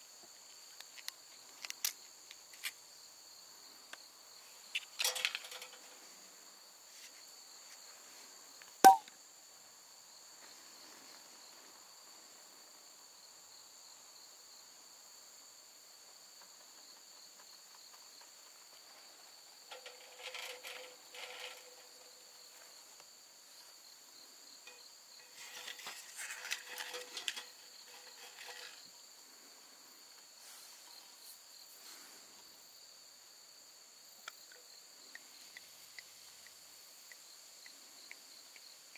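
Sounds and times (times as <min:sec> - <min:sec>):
crickets chirring: 0:00.0 - 0:38.9
sharp click: 0:08.9 - 0:09.1
rustling: 0:19.7 - 0:22.8, 0:24.7 - 0:28.9.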